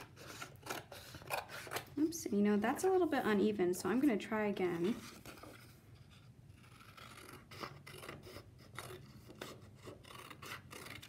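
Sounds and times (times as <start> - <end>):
scissors snipping paper: 0.0 - 1.9, 6.6 - 11.0.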